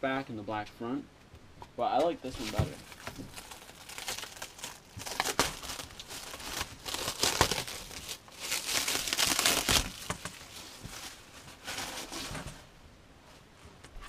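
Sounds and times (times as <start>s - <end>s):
plastic wrapping crinkling: 2.2s - 12.4s.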